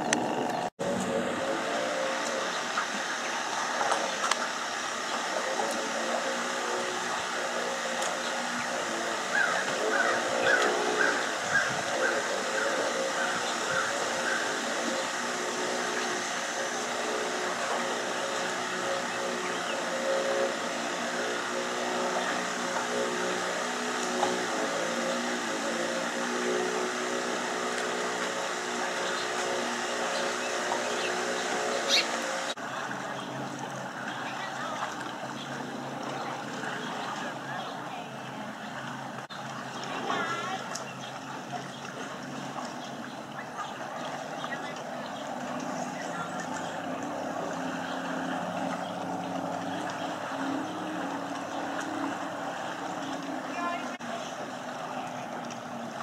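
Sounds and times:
constant hiss: 0.0 - 35.2
motor humming: 0.0 - 56.0.

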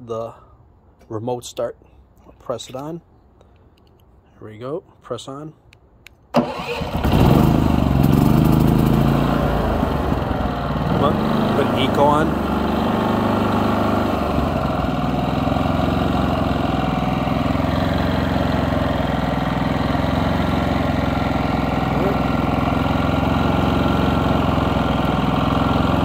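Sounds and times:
generator engine idling: 6.4 - 26.0.

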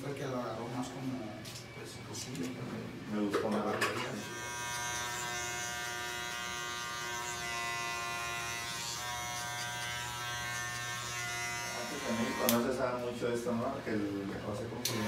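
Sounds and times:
electric hair clipper buzzing: 4.1 - 12.7.

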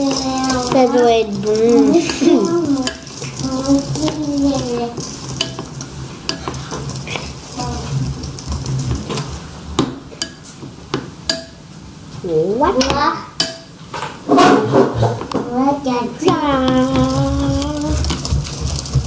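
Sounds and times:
wire whisk stirring chocolate: 0.0 - 10.4, 12.7 - 13.6, 15.2 - 19.0.

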